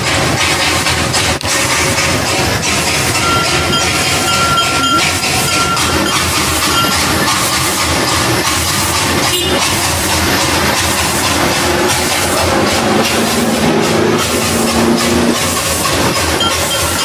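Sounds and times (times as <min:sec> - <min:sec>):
steam train running past: 0:00.0 - 0:17.0
thin high tone: 0:03.0 - 0:08.4, 0:11.0 - 0:17.0.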